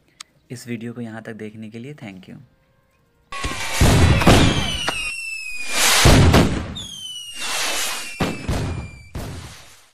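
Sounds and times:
descending whistling tones: 0:03.4 - 0:06.1, 0:06.7 - 0:09.1
booming firework bursts: 0:03.4 - 0:09.9.

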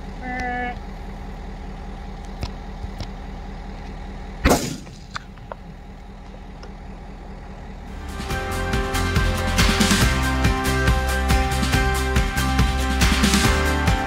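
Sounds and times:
vehicle engine idling: 0:00.0 - 0:14.0
rifle shot: 0:04.4 - 0:05.2
music: 0:08.0 - 0:14.0.

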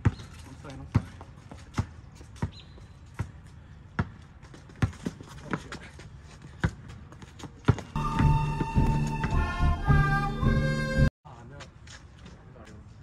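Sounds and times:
basketball bouncing on asphalt: 0:00.0 - 0:09.5
loud music: 0:08.0 - 0:11.1.

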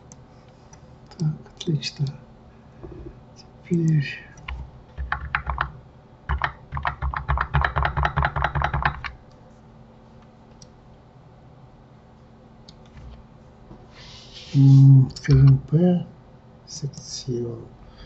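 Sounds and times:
computer keyboard typing: 0:03.9 - 0:09.2.

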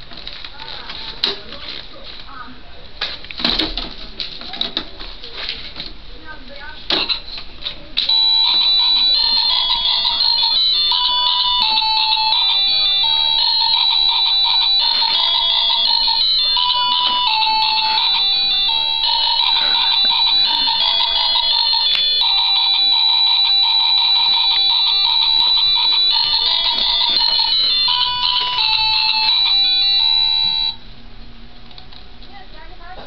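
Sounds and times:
toy beeping melody: 0:08.1 - 0:30.8.

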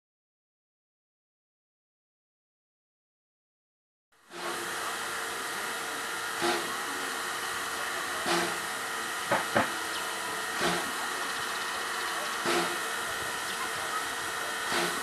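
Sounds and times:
steam locomotive hissing: 0:04.3 - 0:15.0
steam locomotive puffs: 0:04.3 - 0:15.0.

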